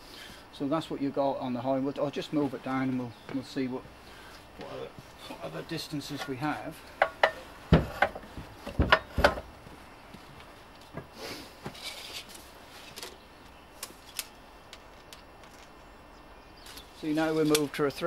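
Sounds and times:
soft scraping and rustling: 0:11.6 - 0:13.2.

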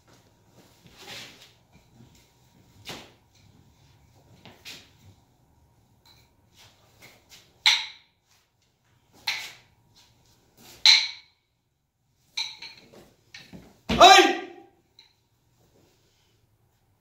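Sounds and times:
nunchaku clacks: 0:07.0 - 0:08.2, 0:09.2 - 0:09.7, 0:10.7 - 0:11.4, 0:12.3 - 0:13.8.

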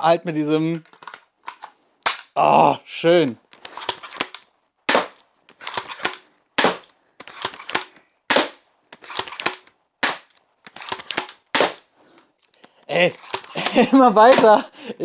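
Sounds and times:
bow shots: 0:04.9 - 0:08.6, 0:09.2 - 0:11.9.

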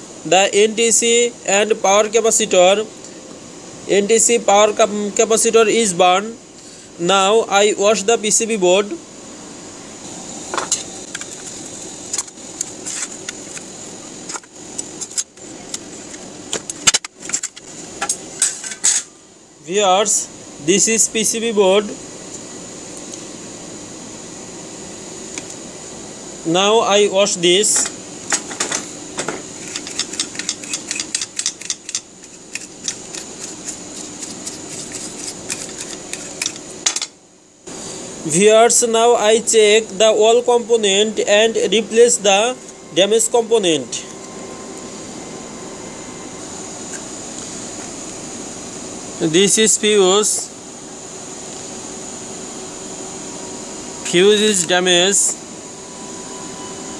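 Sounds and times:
steady background hum: 0:00.0 - 0:56.9
brush scrubbing circuit board: 0:29.6 - 0:36.7.

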